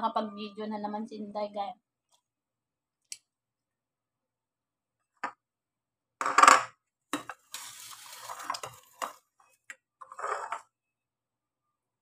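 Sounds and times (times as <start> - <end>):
metal bowl clattering and scraping: 7.2 - 9.3, 10.0 - 10.7.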